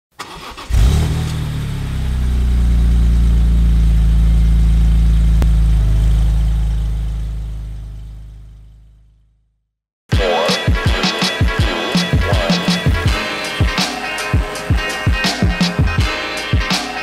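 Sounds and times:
car engine starting and idling: 0.1 - 9.4.

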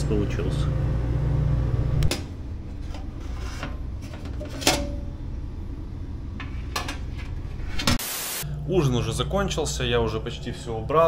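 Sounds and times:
low hum: 7.5 - 11.0.

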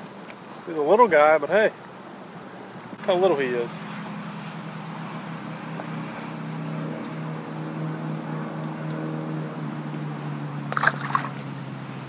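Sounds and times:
fish splashing into pond: 10.7 - 11.8.

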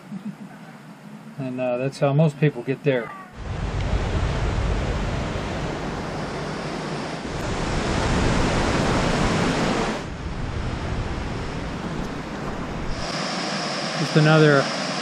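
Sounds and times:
wind rumble on microphone: 3.4 - 13.1
river water rushing: 3.4 - 15.0.

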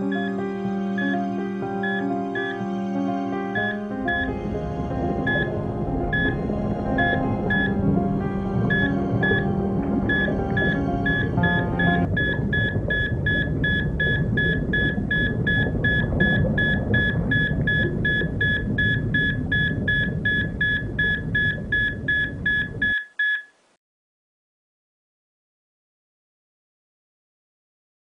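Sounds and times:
held musical tones: 0.0 - 22.8
dense low rumble: 3.8 - 22.8
high repeating electronic beep: 16.6 - 23.4.

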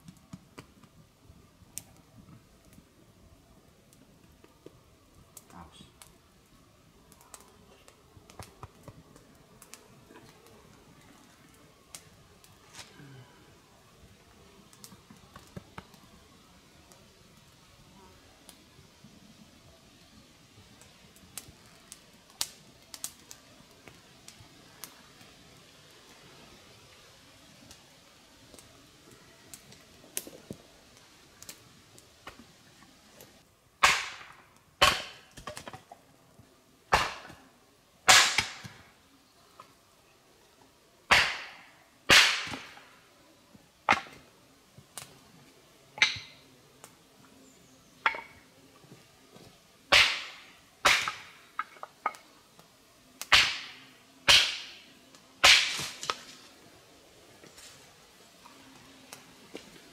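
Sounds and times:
axe splitting wood: 33.8 - 35.2, 49.9 - 51.3, 53.3 - 54.8.

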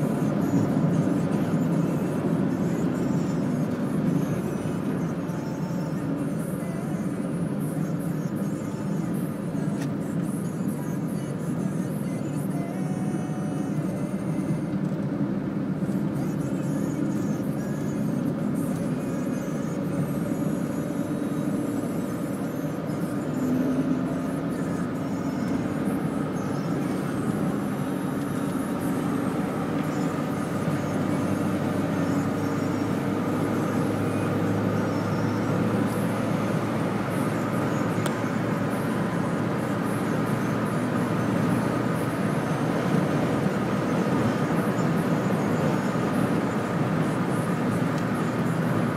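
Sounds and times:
car engine and tyre noise: 0.0 - 48.9.

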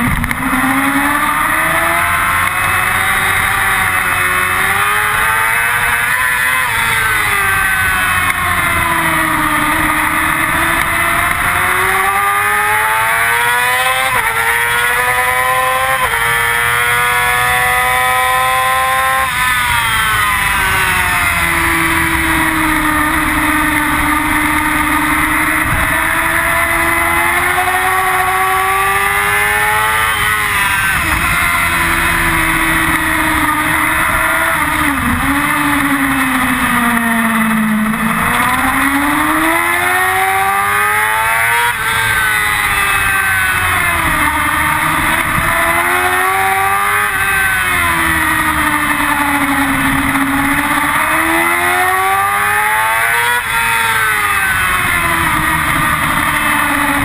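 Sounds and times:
motorcycle engine at high revs: 0.0 - 57.0
wind noise: 20.4 - 28.6.

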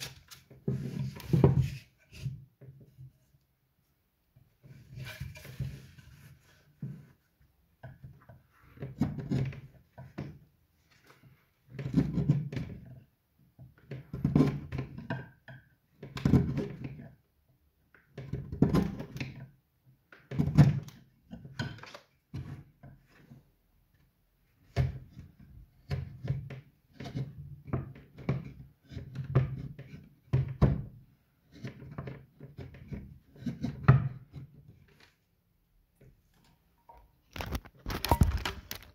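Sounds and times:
chisel scraping wood: 31.5 - 34.7.

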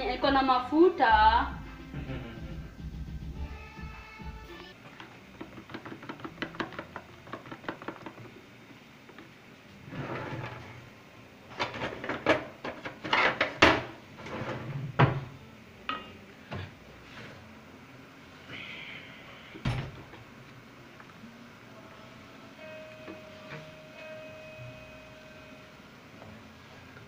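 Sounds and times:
utensils clattering against metal pot: 5.0 - 8.3.

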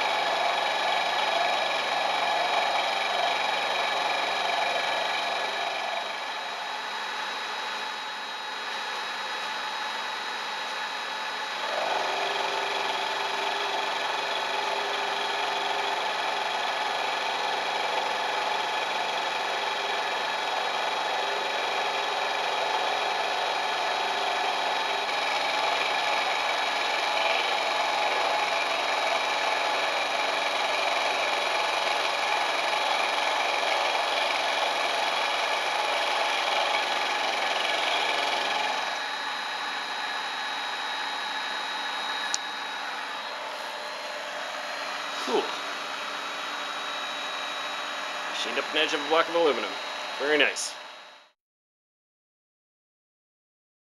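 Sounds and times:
end mill cutting aluminium: 0.0 - 50.8
spindle motor running: 0.0 - 51.3.

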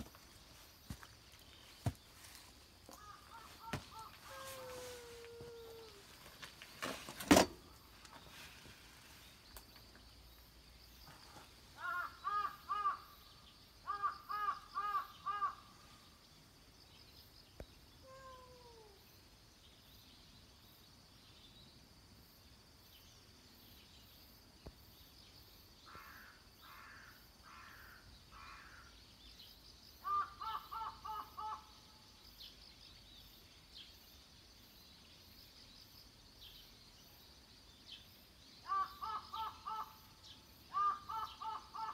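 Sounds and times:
crow cawing: 2.9 - 4.8, 11.8 - 13.2, 13.9 - 15.7, 25.9 - 28.8, 30.0 - 31.7, 38.7 - 40.0, 40.7 - 41.9.

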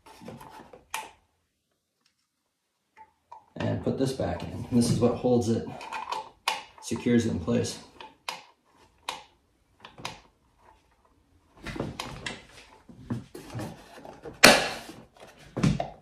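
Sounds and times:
loud plastic snap: 14.4 - 14.9.

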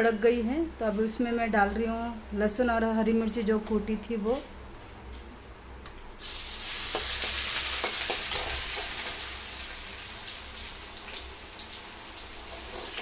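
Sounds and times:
hot oil sizzling: 6.2 - 13.0.

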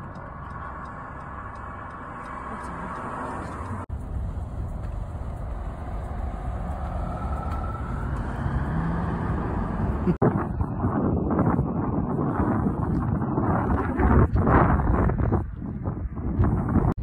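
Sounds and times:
low rumble: 3.6 - 17.0.

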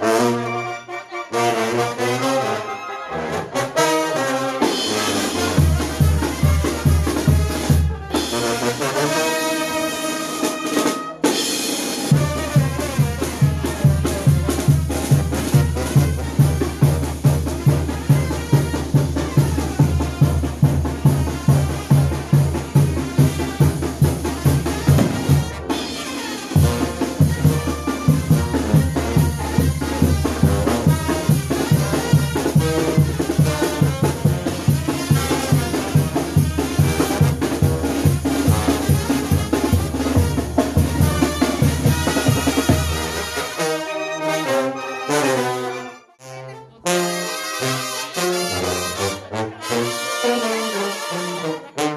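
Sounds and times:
brass playing: 0.0 - 51.9
bass drum and snare beat: 4.8 - 8.7, 11.6 - 43.3.

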